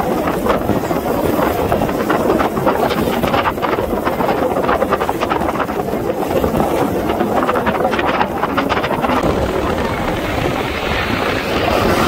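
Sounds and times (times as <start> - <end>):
wind buffeting microphone: 0.0 - 12.0
jet flying overhead: 4.9 - 12.0.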